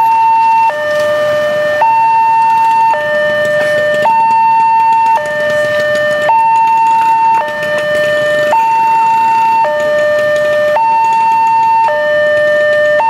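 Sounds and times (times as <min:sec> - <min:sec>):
level crossing two-tone alarm: 0:00.0 - 0:13.0.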